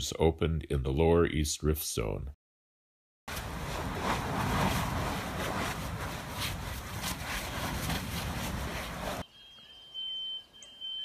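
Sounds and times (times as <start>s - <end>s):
lava rushing: 3.3s - 9.2s
faint chirps: 9.2s - 11.0s
high steady beep: 9.3s - 11.0s.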